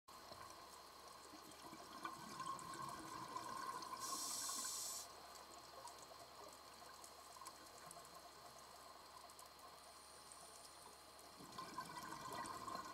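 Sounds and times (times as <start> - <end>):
regulator hiss: 3.9 - 5.2
faint ticks: 4.0 - 11.6.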